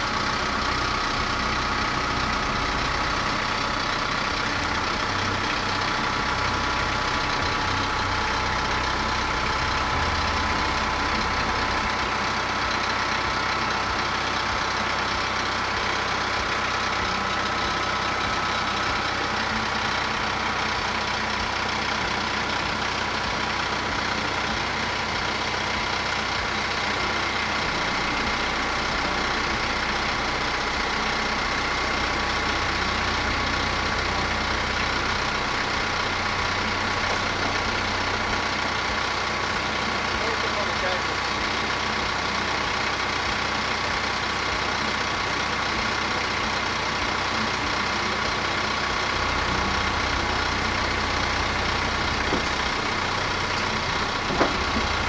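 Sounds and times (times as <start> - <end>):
engine running steadily: 0.0 - 55.0.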